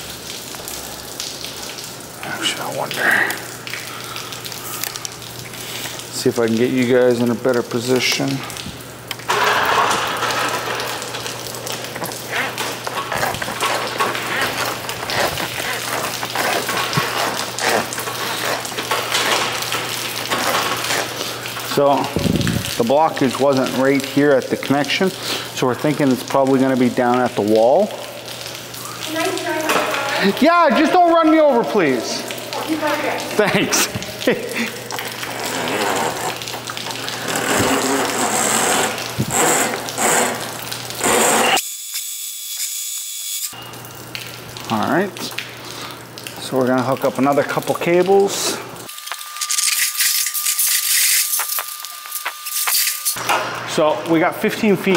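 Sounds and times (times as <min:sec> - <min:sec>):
water splattering on concrete floor: 0:00.0 - 0:54.9
drain-cleaning machine motor hum: 0:06.1 - 0:25.0, 0:29.0 - 0:41.6.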